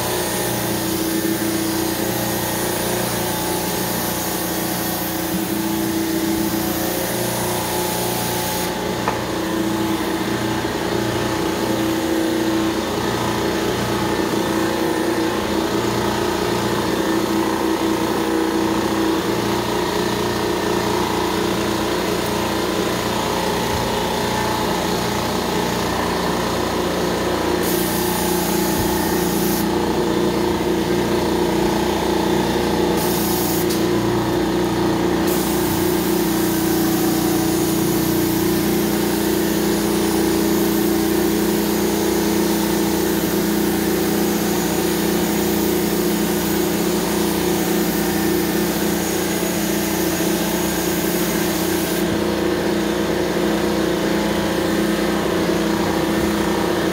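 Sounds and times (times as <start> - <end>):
carpet cleaning machine running: 0.0 - 56.9
spray hissing: 27.6 - 30.4, 31.5 - 34.0, 35.2 - 52.1.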